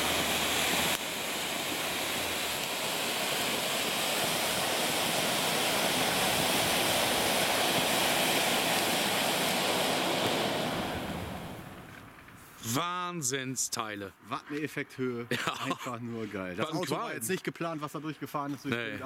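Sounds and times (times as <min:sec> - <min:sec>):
firework fountain hissing: 0:00.0 - 0:12.7.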